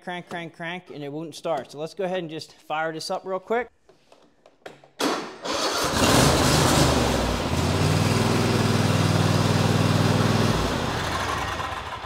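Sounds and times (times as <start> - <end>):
lawn tractor engine starting: 5.0 - 12.0.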